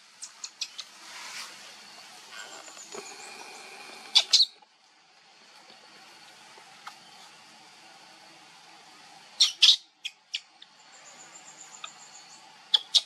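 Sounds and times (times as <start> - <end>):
baby monkey squeaking: 4.1 - 4.6, 9.4 - 10.5, 12.7 - 13.0.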